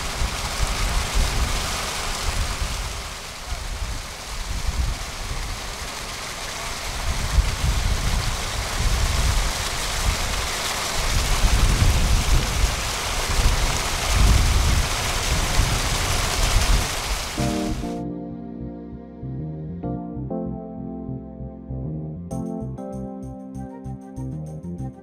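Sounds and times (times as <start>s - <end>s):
water rushing and splashing: 0.0s - 18.0s
low rumbling buffets: 0.0s - 22.3s.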